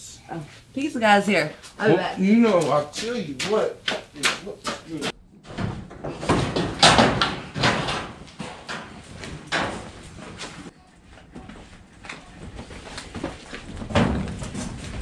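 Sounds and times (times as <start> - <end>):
wooden barn door knocks and scrapes: 5.4 - 8.9.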